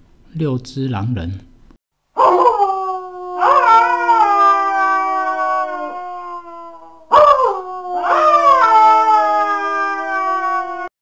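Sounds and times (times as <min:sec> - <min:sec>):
wolves howling in chorus: 0:02.2 - 0:10.9.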